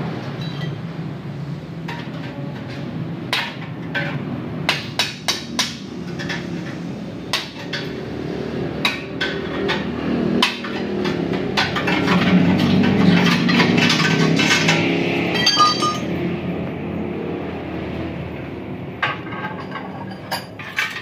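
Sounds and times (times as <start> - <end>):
hammer striking metal: 13.9 - 16.2.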